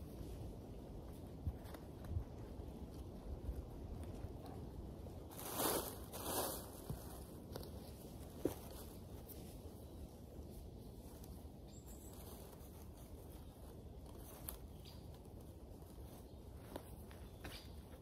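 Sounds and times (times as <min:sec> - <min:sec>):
leaves and soil scraping: 0:00.0 - 0:18.0
outdoor background noise: 0:00.0 - 0:18.0.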